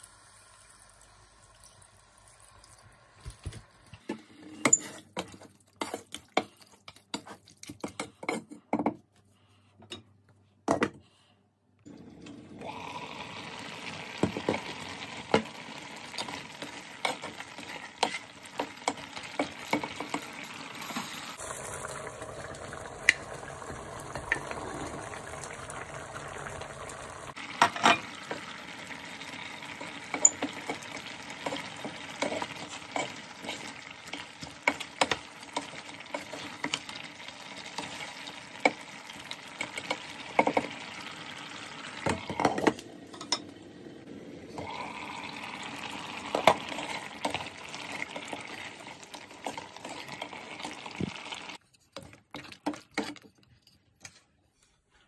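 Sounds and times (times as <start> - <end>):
curry sizzling: 11.9 - 51.6.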